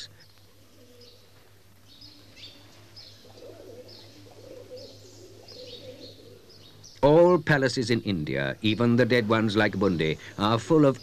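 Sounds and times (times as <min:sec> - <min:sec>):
low wavering cooing calls: 0:00.0 - 0:07.4.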